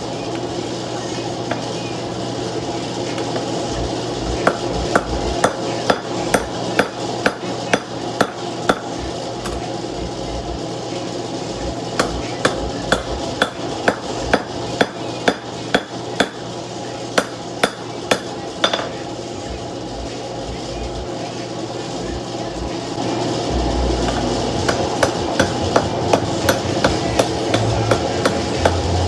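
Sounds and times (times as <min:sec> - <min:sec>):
hammer striking hot steel on anvil: 0:04.4 - 0:09.7, 0:11.9 - 0:16.5, 0:17.2 - 0:19.0, 0:24.0 - 0:29.0.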